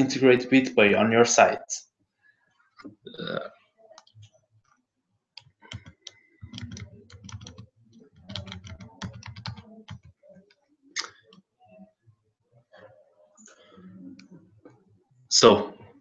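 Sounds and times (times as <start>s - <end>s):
computer keyboard typing: 5.4s - 10.6s.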